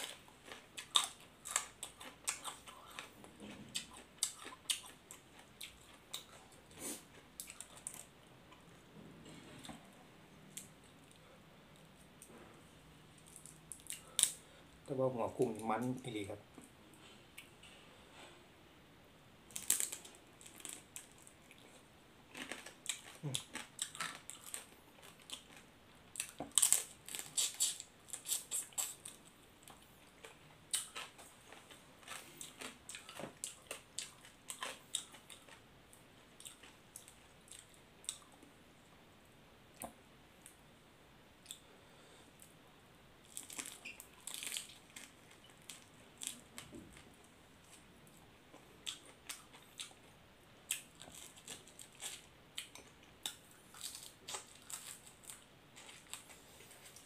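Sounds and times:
crunching and chewing: 0:00.0 - 0:09.9, 0:19.5 - 0:38.5, 0:43.2 - 0:57.0.

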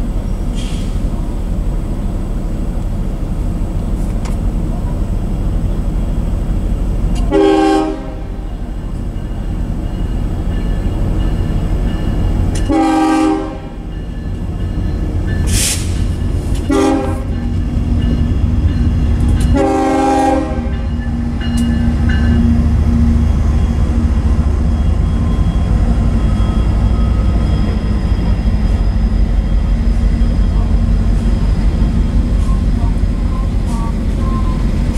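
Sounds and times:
low rumble of train: 0:00.0 - 0:34.9
locomotive air horn: 0:07.3 - 0:08.4, 0:12.6 - 0:13.9, 0:16.7 - 0:17.5, 0:19.5 - 0:20.9.

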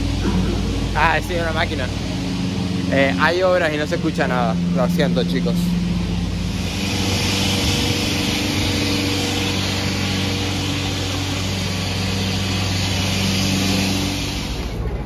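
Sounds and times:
strong hiss: 0:00.0 - 0:14.8
construction machine motor hum: 0:00.0 - 0:15.0.

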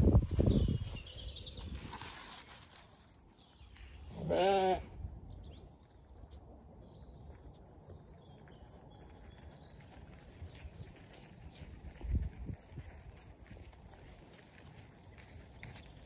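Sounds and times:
sheep bleating: 0:04.1 - 0:04.9.

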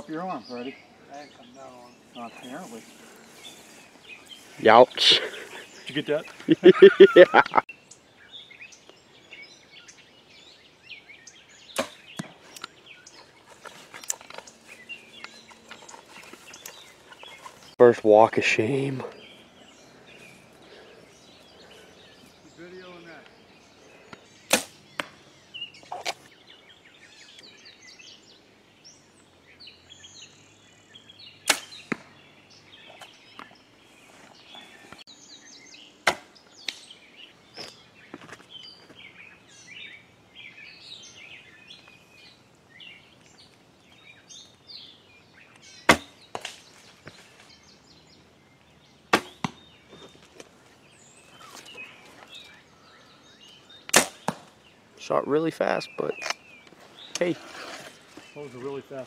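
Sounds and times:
arrow striking foam target: 0:11.8 - 0:12.3, 0:24.5 - 0:25.1, 0:31.5 - 0:32.1, 0:36.0 - 0:36.3, 0:45.9 - 0:46.6, 0:49.1 - 0:49.6, 0:53.9 - 0:54.5.

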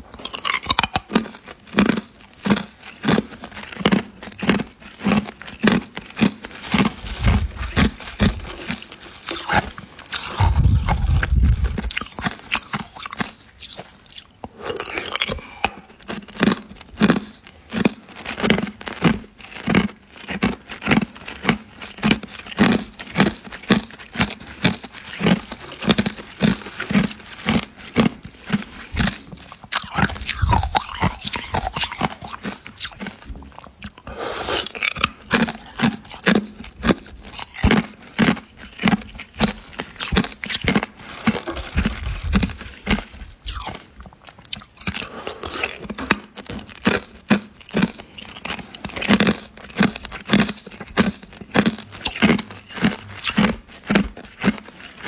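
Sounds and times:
person crunching ice cubes: 0:00.0 - 0:55.0.

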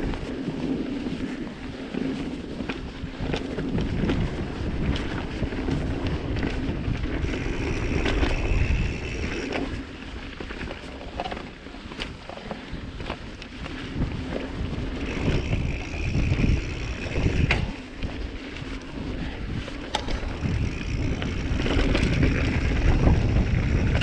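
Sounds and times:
bike tyres rolling on dirt: 0:00.0 - 0:24.0
wind buffeting microphone: 0:00.0 - 0:24.0
bike clattering over bumps: 0:01.9 - 0:24.0.

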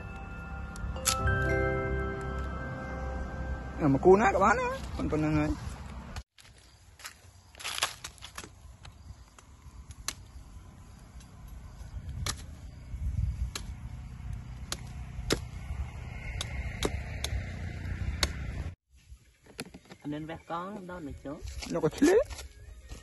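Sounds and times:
knife chopping wooden branch: 0:12.2 - 0:12.6, 0:13.5 - 0:13.9, 0:14.6 - 0:15.7, 0:16.3 - 0:18.6.

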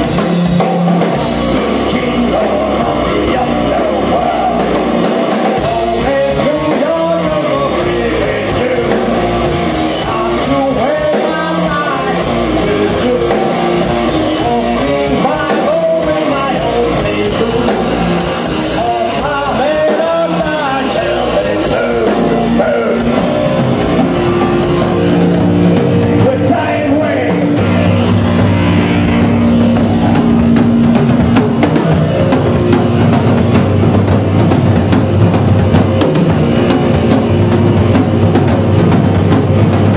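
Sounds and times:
bass guitar: 0:00.0 - 0:39.9
distorted electric guitar: 0:00.0 - 0:39.9
drum kit: 0:00.0 - 0:39.9
person singing: 0:01.1 - 0:25.3.

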